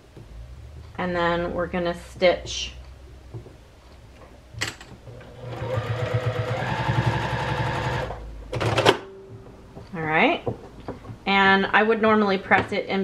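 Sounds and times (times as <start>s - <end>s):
sewing machine stitching: 5.1s - 8.9s.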